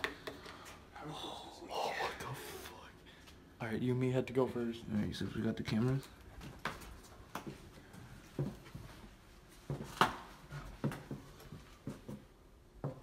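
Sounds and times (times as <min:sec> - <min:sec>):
footsteps: 0:05.2 - 0:12.3.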